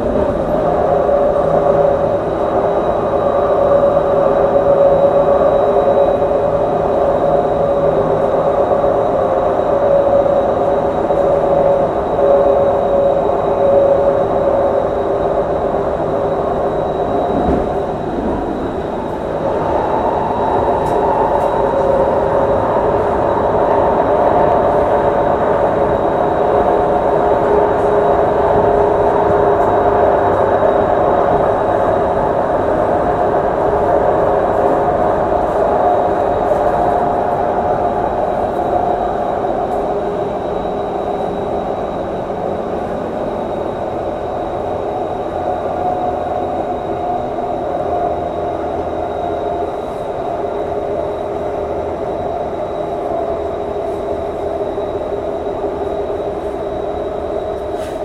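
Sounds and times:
faint high whine: 0.0 - 58.0
train motor hum: 0.0 - 58.0
train wheels rumbling on rails: 0.0 - 58.0.

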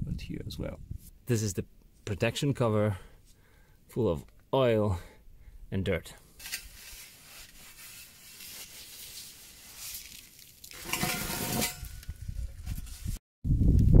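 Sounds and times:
cloth rag wiping metal: 6.8 - 10.0.

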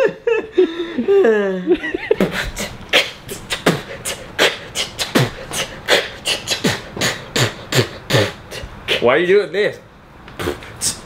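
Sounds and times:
man beatboxing: 2.2 - 9.2, 10.3 - 11.0.

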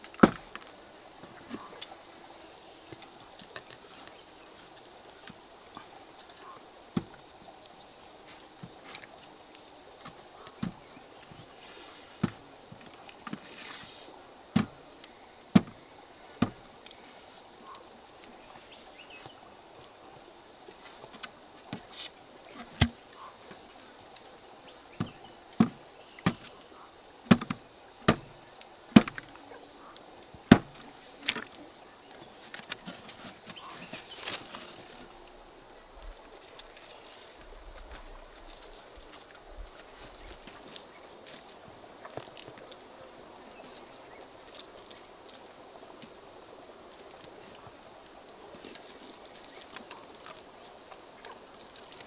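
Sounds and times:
bamboo cracking and knocking: 0.0 - 1.9, 2.9 - 4.3, 6.9 - 9.2, 14.5 - 17.0, 20.7 - 23.1, 24.9 - 26.6, 27.2 - 29.5, 30.2 - 35.4, 37.6 - 42.9, 44.1 - 46.2, 48.6 - 52.0.

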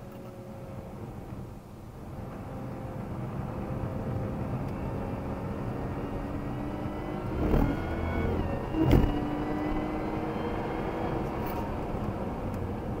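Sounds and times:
car engine from inside cabin: 0.0 - 13.0
short thump: 8.8 - 9.2.

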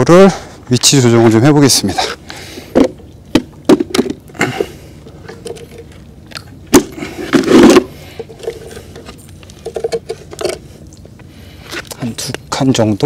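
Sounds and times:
rattling scrape: 7.2 - 10.6.

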